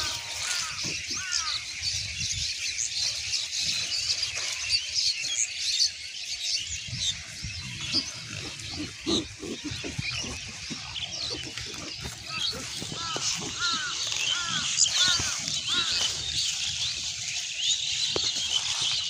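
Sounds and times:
birds chirping: 0.0s - 19.0s
pigs grunting: 7.5s - 16.4s.

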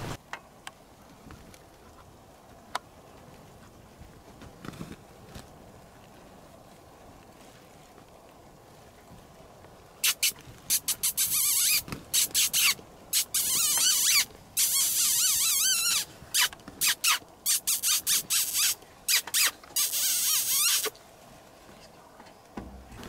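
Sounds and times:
shrill harsh animal calls: 10.0s - 20.9s.

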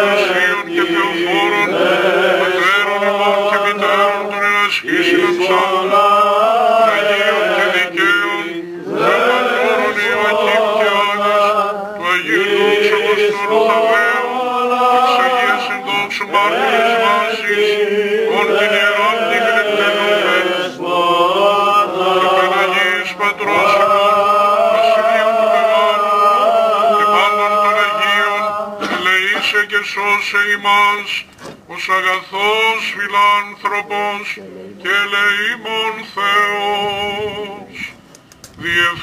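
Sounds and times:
held vocal drone note: 0.0s - 29.1s
chant melody sung: 0.0s - 39.0s.

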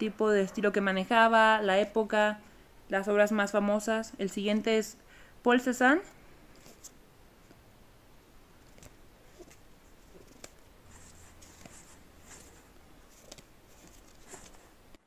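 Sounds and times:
cards swishing: 6.5s - 7.6s, 8.6s - 14.8s.

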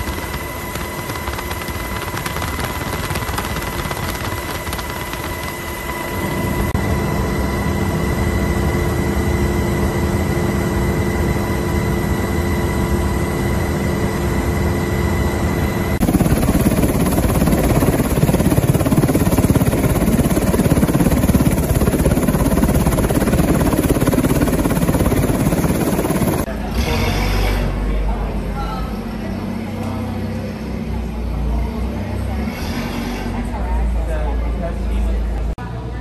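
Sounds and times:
helicopter cabin whine and rumble: 0.0s - 26.5s
helicopter rotor and engine noise: 0.0s - 35.5s.

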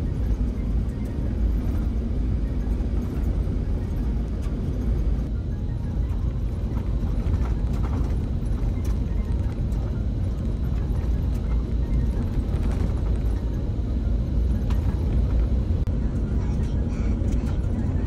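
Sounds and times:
vehicle road and engine rumble: 0.0s - 18.0s.

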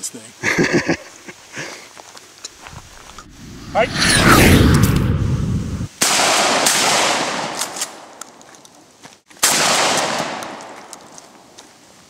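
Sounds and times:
shotgun shots echoing: 9.4s - 10.6s.

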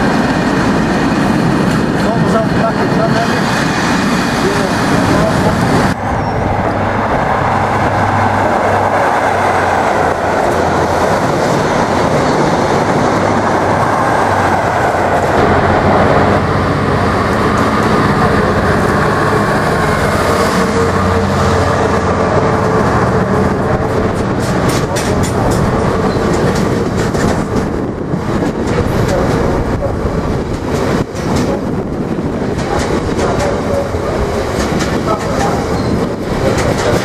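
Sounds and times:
diesel locomotive hauling wagons: 0.0s - 37.0s
diesel train engine passing: 0.0s - 37.0s
wagon wheels clacking on rail joints: 23.3s - 31.8s, 32.4s - 37.0s.

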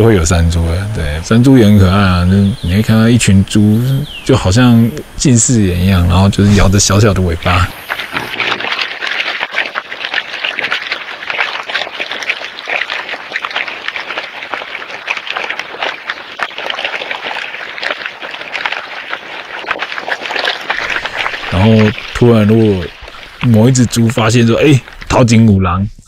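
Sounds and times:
boars rustling dry leaves: 6.2s - 25.2s.

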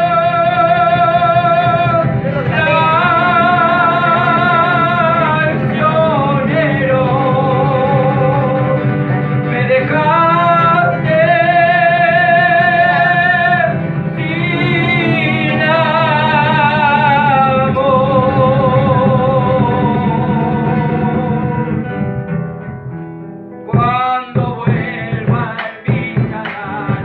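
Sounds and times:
man singing with vibrato: 0.0s - 22.1s, 23.6s - 27.0s
guitar: 0.0s - 27.0s.

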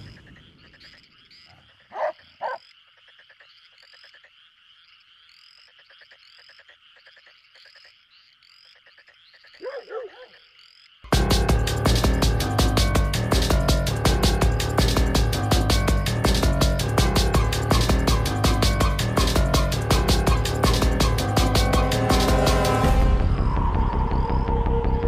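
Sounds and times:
frog-like croaks: 0.0s - 11.1s
electronic music with heavy beat: 11.1s - 23.5s
insect-like drone: 17.7s - 25.0s.

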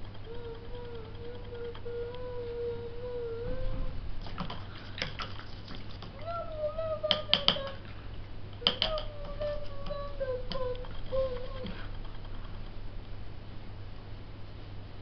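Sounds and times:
person humming: 0.0s - 4.0s, 6.1s - 7.9s, 8.6s - 12.0s
brush swishing in water: 4.6s - 6.1s.

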